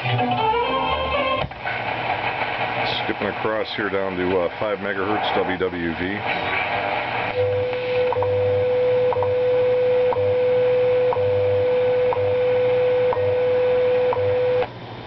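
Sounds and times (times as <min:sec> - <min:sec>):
steady radio tone: 0:01.6 - 0:13.0.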